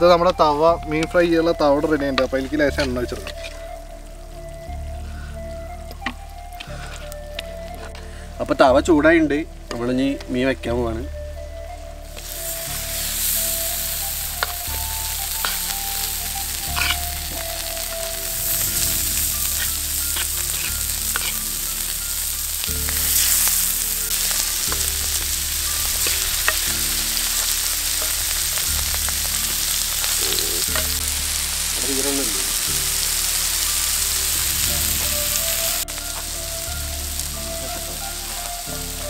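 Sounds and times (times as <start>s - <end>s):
fish frying in hot oil: 11.4s - 39.0s.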